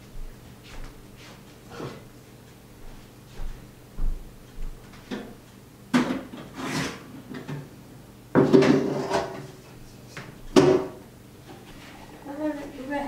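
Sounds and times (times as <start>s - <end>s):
knocks and short scrapes: 6.4s - 7.0s.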